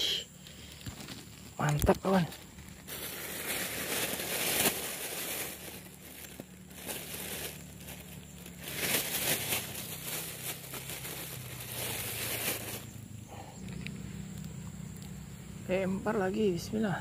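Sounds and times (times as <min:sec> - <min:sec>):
plastic bag crinkling: 0:00.4 - 0:12.9.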